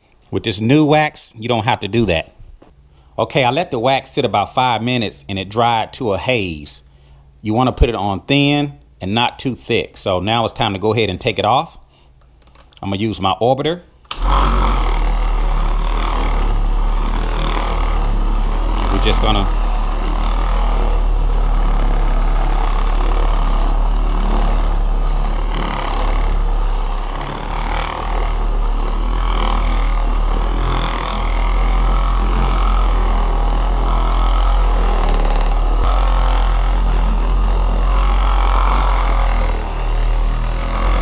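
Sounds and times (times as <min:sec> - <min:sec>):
orbital polisher running: 0:14.1 - 0:41.0.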